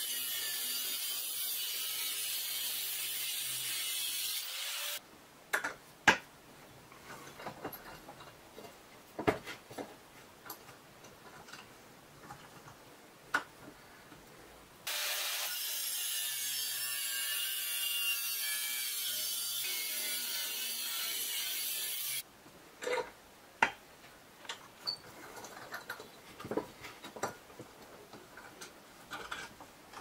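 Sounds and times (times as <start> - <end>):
angle grinder cutting steel: 0.0 - 5.0, 14.9 - 22.2.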